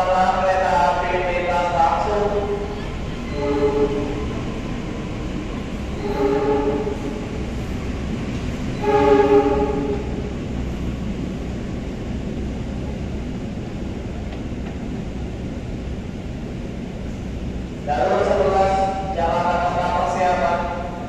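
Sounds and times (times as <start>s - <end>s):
low rumble of rail engine: 0.0s - 21.0s
train horn blasts: 3.3s - 4.4s, 6.0s - 7.4s, 8.8s - 10.2s.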